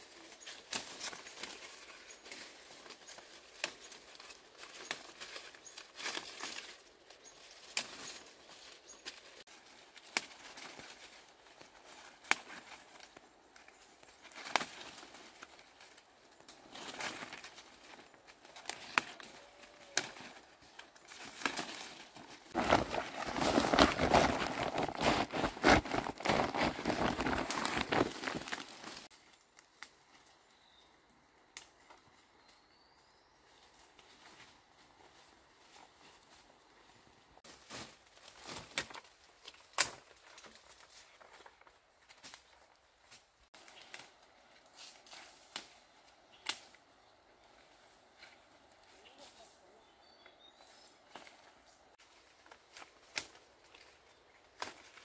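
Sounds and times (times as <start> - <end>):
leaves rustling: 0.0 - 30.8, 31.5 - 55.0
stems snapping: 0.4 - 30.2, 31.5 - 32.0, 38.3 - 40.8, 42.1 - 46.9, 52.4 - 54.0, 54.6 - 55.0.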